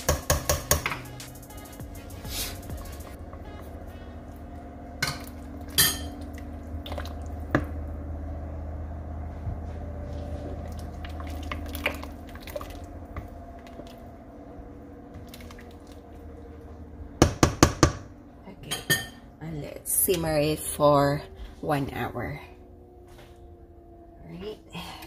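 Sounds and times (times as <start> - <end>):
spoon knocking against pot: 0.0 - 1.1
spoon stirring thick stew: 10.6 - 14.1.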